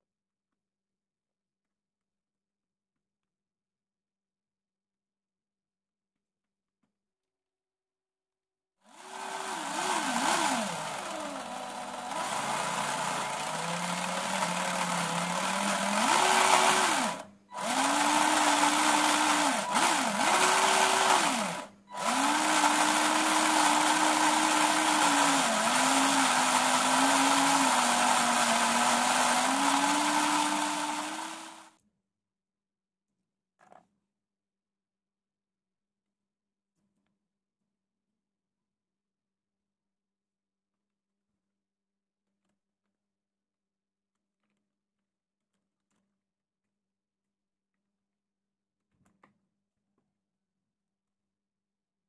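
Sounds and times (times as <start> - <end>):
small electric motor whining: 8.9 - 31.8.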